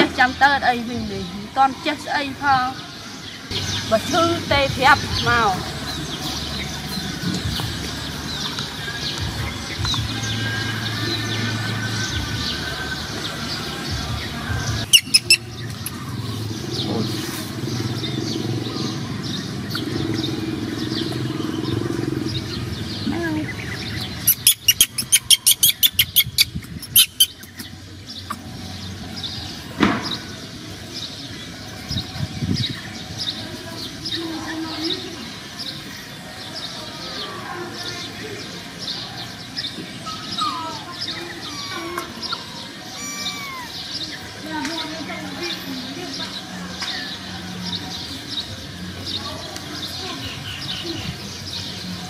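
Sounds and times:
birds chirping: 0:00.0 - 0:52.0
low engine rumble: 0:03.5 - 0:24.4.

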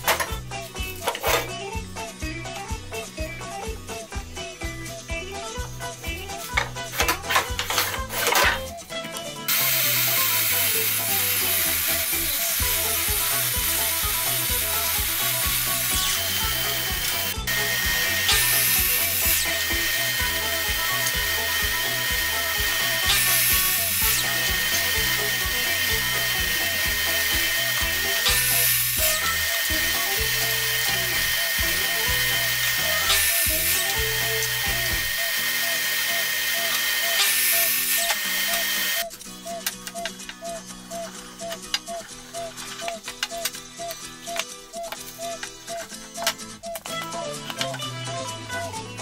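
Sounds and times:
background music with steady beat: 0:00.0 - 0:49.0
miter saw cutting plywood: 0:09.5 - 0:39.0.

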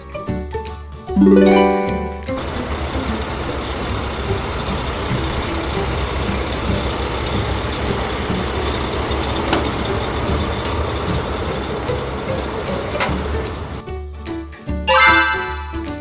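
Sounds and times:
vehicle engine running: 0:02.2 - 0:13.8.

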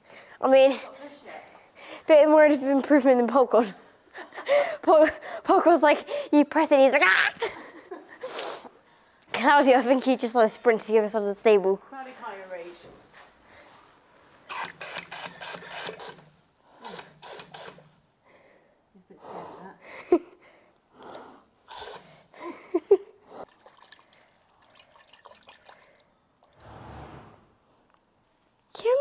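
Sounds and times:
water gushing into drinking bowl: 0:23.4 - 0:26.6.

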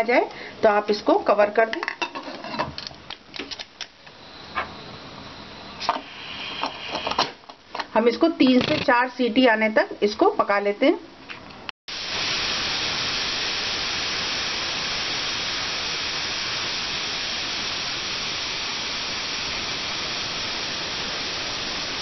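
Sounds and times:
pressure cooker hissing steam: 0:04.2 - 0:07.4, 0:11.9 - 0:22.0.

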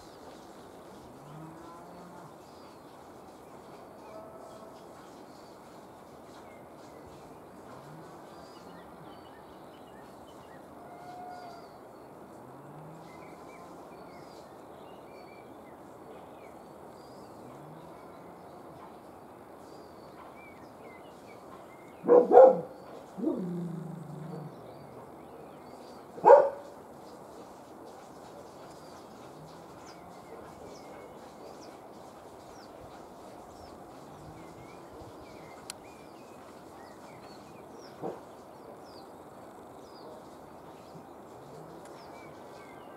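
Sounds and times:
outdoor hiss: 0:00.0 - 0:42.9
dog barking: 0:22.0 - 0:23.4, 0:26.2 - 0:26.7.

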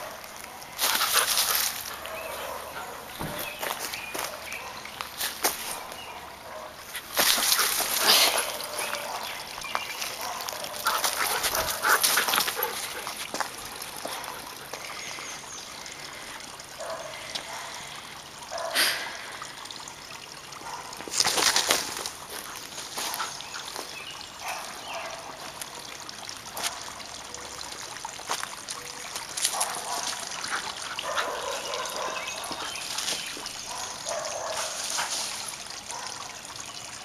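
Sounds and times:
dog digging in wood chips: 0:00.8 - 0:03.6, 0:06.9 - 0:09.2.

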